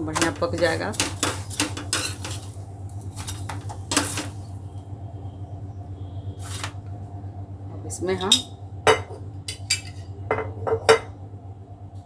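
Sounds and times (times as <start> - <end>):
steady low hum: 0.0 - 12.0
utensil clattering on frying pan: 0.1 - 2.5.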